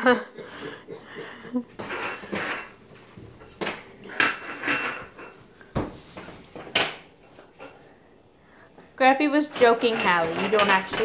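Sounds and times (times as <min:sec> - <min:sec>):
plate clattering on tile floor: 0:01.6 - 0:07.9, 0:09.4 - 0:11.0.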